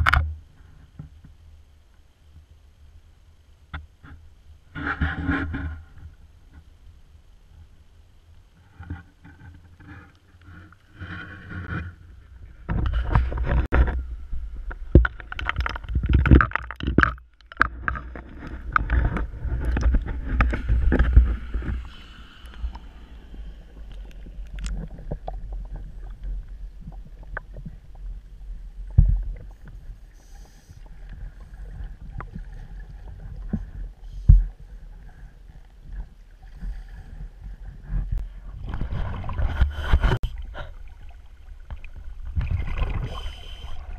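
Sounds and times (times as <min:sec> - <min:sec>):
muffled water sloshing: 0:08.6 - 0:43.9
exhaled bubbles rising: 0:40.4 - 0:43.9.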